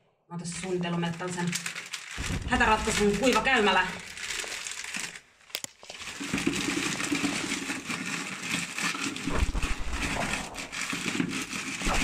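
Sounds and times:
wood shavings pouring into bucket: 1.6s - 5.2s, 5.8s - 9.3s
low thumps: 2.2s - 3.4s, 9.3s - 10.8s.

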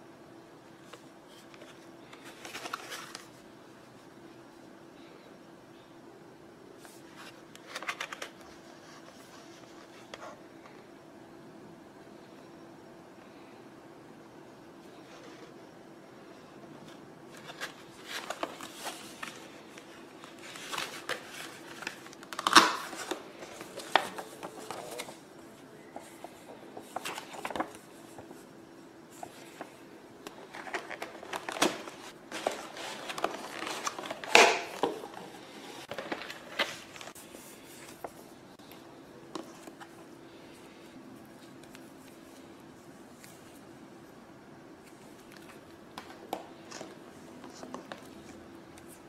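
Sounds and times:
paper and packaging rustling: 1.3s - 3.4s, 16.9s - 28.4s, 29.1s - 40.4s.

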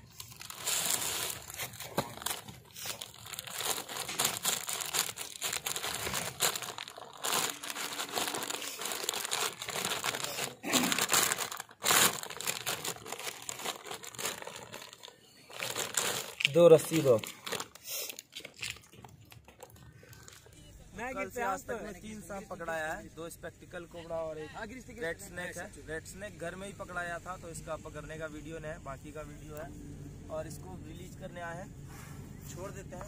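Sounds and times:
material crinkling and rustling: 0.0s - 20.6s.

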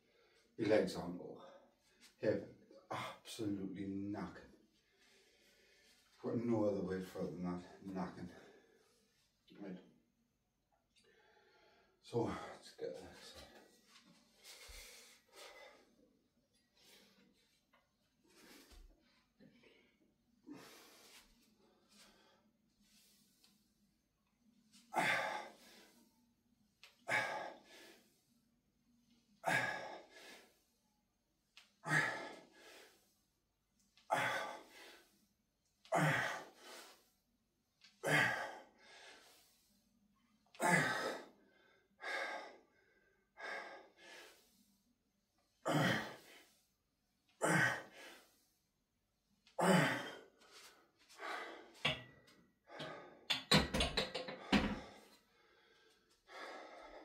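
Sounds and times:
man breathing hard: 13.4s - 16.0s, 18.2s - 23.6s, 24.9s - 26.1s, 27.0s - 28.3s, 29.3s - 30.8s, 31.8s - 33.3s, 34.1s - 35.3s, 35.9s - 37.2s, 38.0s - 39.8s, 40.6s - 44.8s, 45.4s - 46.7s, 47.4s - 48.7s, 49.6s - 53.4s, 54.2s - 57.0s.

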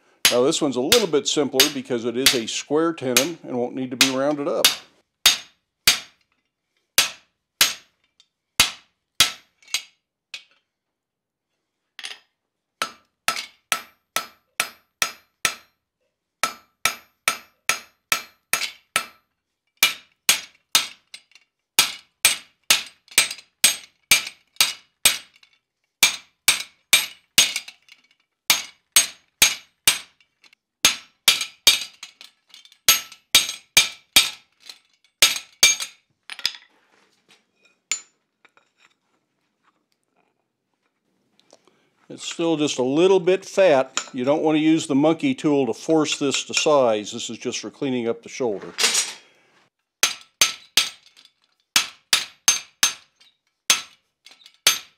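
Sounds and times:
hammer striking metal with ringing: 12.8s - 15.8s, 16.4s - 19.2s.

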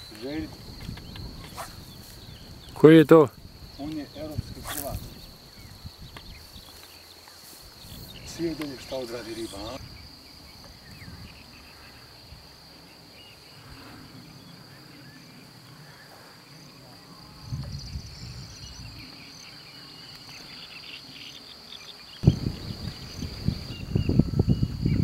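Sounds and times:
wind buffeting microphone: 0.0s - 6.8s, 7.6s - 12.7s, 17.2s - 19.5s, 22.2s - 25.0s
insects chirring: 0.0s - 25.0s.

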